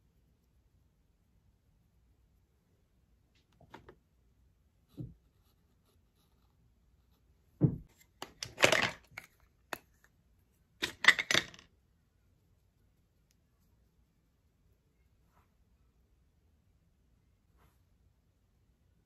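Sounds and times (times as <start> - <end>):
soft knock: 7.6 - 7.9.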